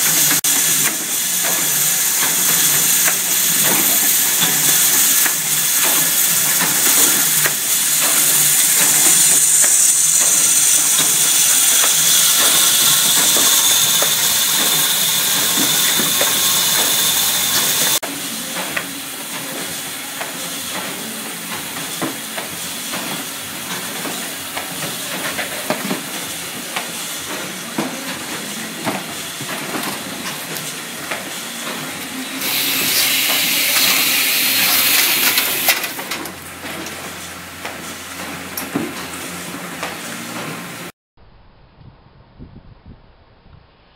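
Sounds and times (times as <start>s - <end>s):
riveting machine hissing and clattering: 0.0s - 40.9s.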